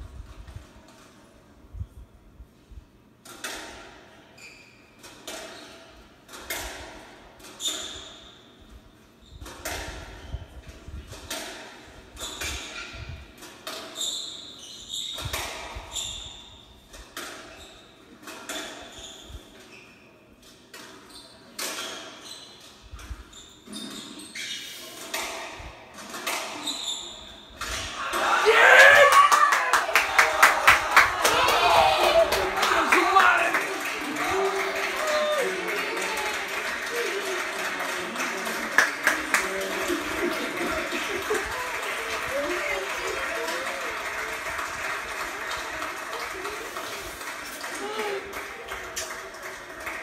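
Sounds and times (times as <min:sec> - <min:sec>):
crowd cheering: 0:27.9 - 0:50.0.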